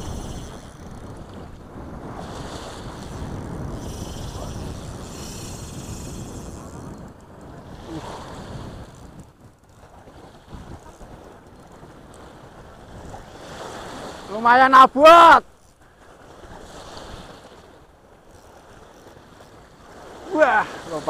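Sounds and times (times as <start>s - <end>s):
wind buffeting microphone: 0.0s - 14.3s
small waves washing onto shore: 0.0s - 21.0s.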